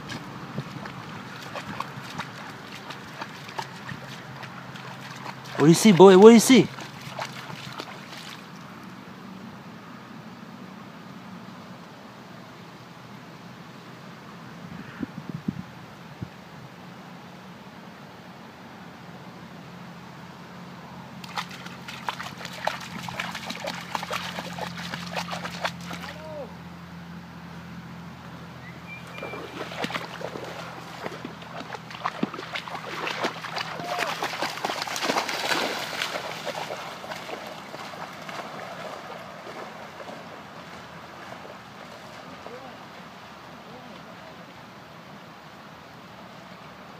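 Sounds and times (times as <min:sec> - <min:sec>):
wading through shallow water: 0:00.0 - 0:09.0, 0:21.1 - 0:46.5.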